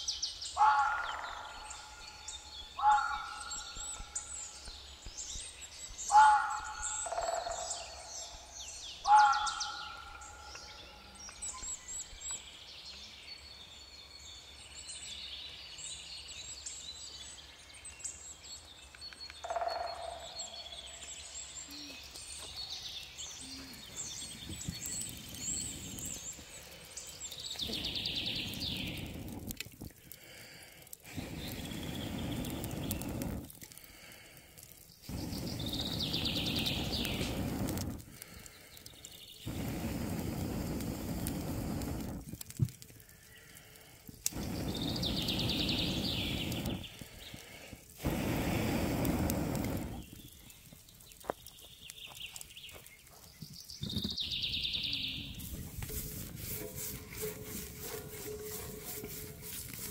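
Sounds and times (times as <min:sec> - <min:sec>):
bird singing: 0:00.0 - 0:29.4, 0:31.2 - 0:33.4, 0:34.8 - 0:37.6, 0:38.4 - 0:40.0, 0:44.3 - 0:47.5, 0:49.9 - 0:59.9
air blown on charcoal fire: 0:20.3 - 0:59.9.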